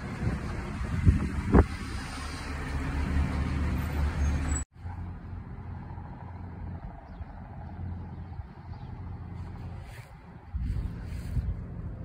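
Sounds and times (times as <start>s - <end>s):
fire engine driving past: 0.0s - 12.0s.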